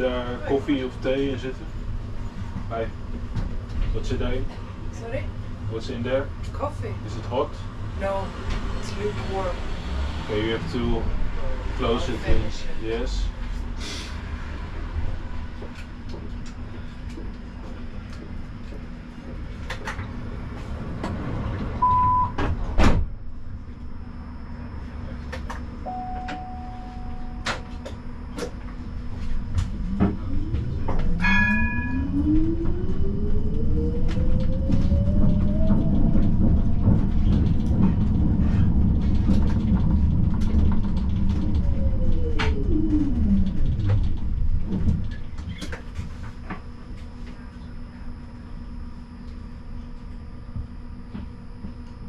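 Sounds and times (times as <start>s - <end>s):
steady rumble: 0.0s - 52.0s
tram traction drive whining: 24.1s - 45.8s
short chime: 25.9s - 27.5s, 31.2s - 32.1s
wheels clicking on rails: 29.6s - 45.9s.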